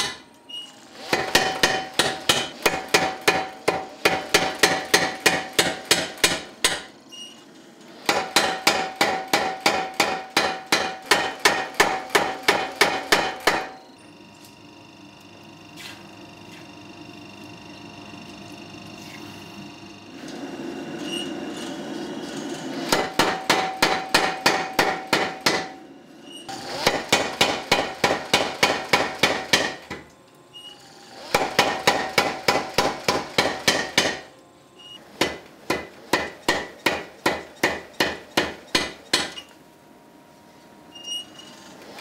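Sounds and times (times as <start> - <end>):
power hammer striking steel: 0.0 - 0.3, 1.0 - 7.0, 8.0 - 13.9, 22.7 - 25.8, 26.6 - 30.1, 31.3 - 34.3, 35.2 - 39.5.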